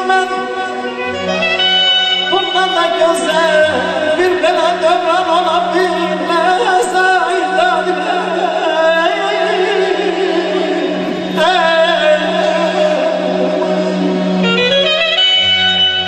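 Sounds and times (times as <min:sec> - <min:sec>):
man singing into a microphone: 0:00.0 - 0:01.6, 0:02.2 - 0:14.8.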